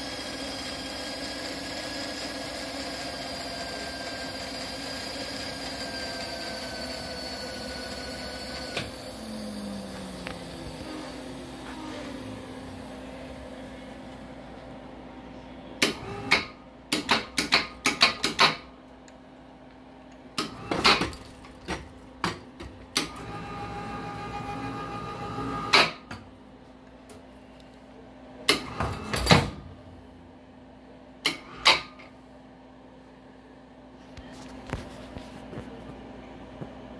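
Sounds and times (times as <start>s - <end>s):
electric winch motor whirring: 0.0s - 13.6s, 23.0s - 25.9s
low hum: 8.4s - 15.8s.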